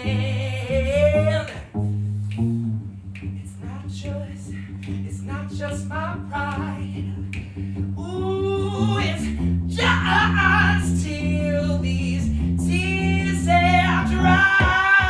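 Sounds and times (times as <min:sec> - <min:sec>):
bass guitar low notes: 0:00.0 - 0:14.8.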